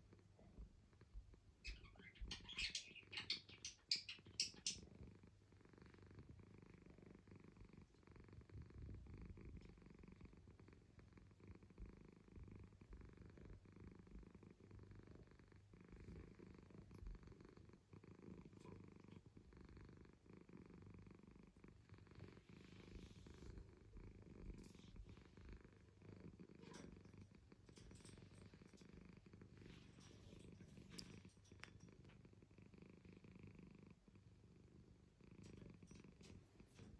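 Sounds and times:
cat purring: 0:00.0 - 0:36.9.

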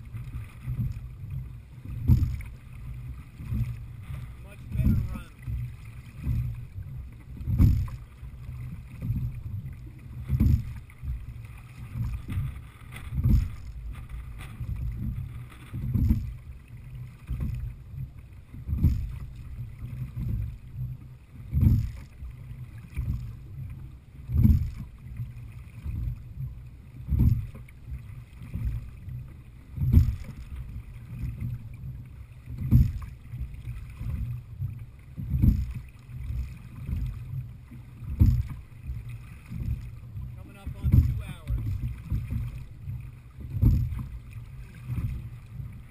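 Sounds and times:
oars knocking and water rushing: 0:00.0 - 0:45.9.

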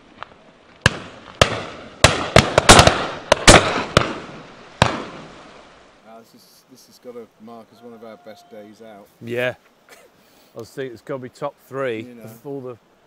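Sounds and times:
shotgun shots echoing: 0:00.8 - 0:05.4.

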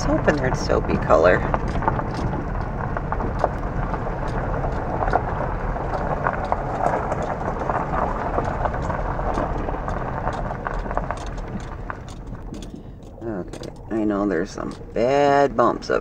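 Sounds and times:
tyres crunching on gravel: 0:00.1 - 0:16.0
stones clicking and knocking: 0:01.4 - 0:13.9.

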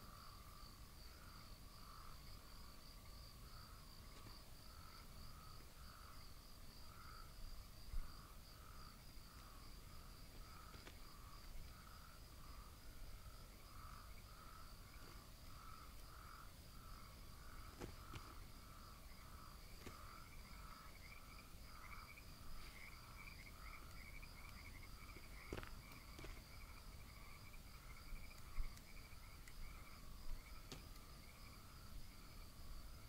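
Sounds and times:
frogs calling: 0:00.0 - 0:32.4
high insect trill: 0:00.0 - 0:33.0.

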